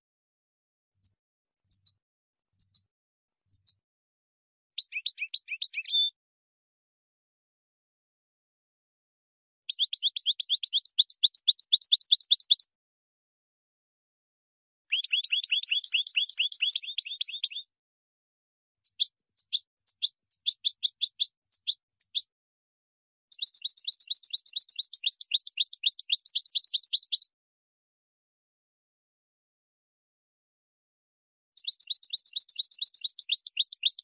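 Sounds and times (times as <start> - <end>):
songbird singing fast trills: 1.7 - 2.0, 2.6 - 2.8, 4.8 - 6.2, 9.7 - 12.7, 14.9 - 17.7, 18.8 - 22.3, 23.3 - 27.4, 31.6 - 34.0.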